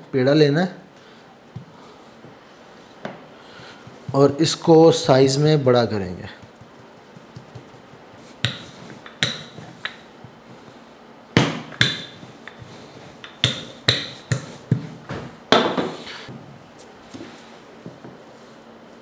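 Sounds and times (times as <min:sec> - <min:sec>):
rolling pin rolling dough: 0:03.6 - 0:04.4, 0:06.0 - 0:10.8, 0:11.4 - 0:16.3.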